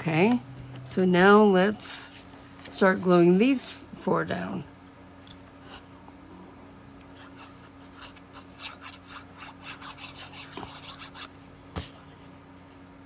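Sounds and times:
glue stick scratching on paper: 7.2 - 11.3.

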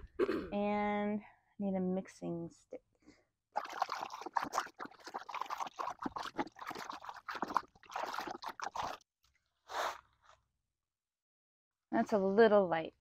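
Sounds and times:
liquid sloshing in plastic bucket: 3.6 - 9.1.

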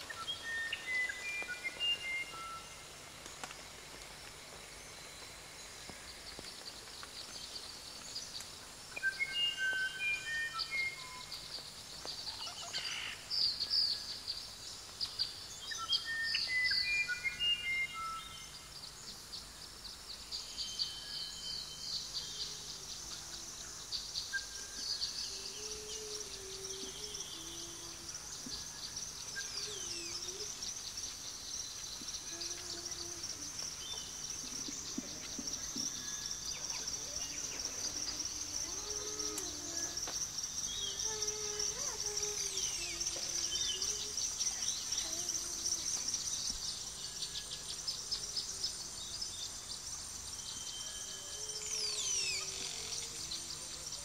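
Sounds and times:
buzzing insect-like hum: 18.2 - 54.0.

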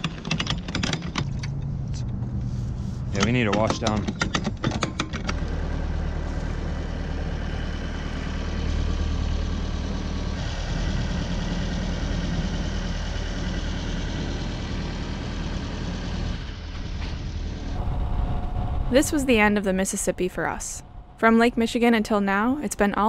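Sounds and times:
boat engine humming: 5.3 - 23.0.

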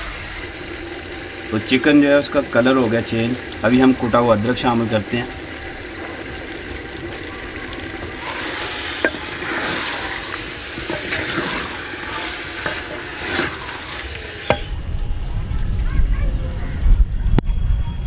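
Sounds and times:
meat sizzling in a pot: 0.0 - 14.7
wooden spoon scraping clay pot: 7.6 - 14.7
low rumble: 14.7 - 18.0.

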